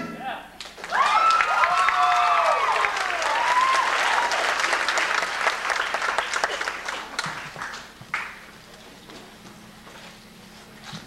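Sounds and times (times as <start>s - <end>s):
high voices whooping: 0.2s - 4.9s
audience applauding and cheering: 0.6s - 8.5s.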